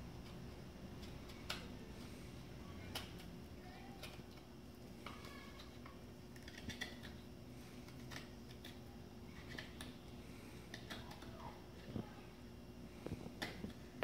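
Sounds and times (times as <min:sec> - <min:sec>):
knife scraping wood: 0:06.4 - 0:08.8.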